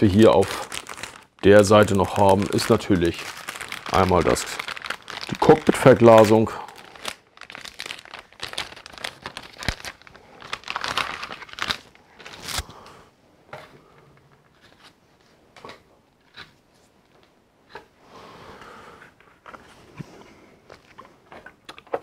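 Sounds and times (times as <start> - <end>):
plastic bag crinkling: 0.0 - 12.7
plastic pieces clicking and rustling: 0.2 - 12.5.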